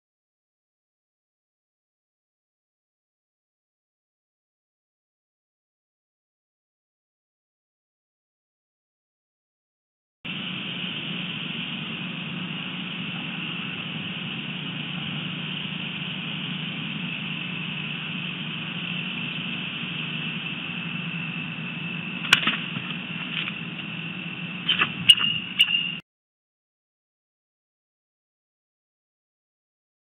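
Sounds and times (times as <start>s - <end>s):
low hum: 10.3s - 26.0s
eagle calling: 24.6s - 26.0s.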